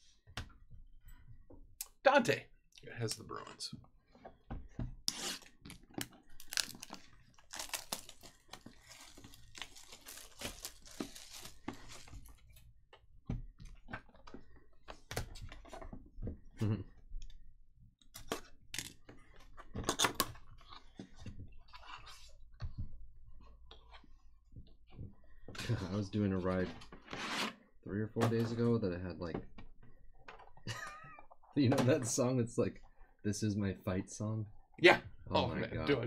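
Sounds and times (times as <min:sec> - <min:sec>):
shrink-wrap crinkling and tearing: 0:06.3 - 0:12.4.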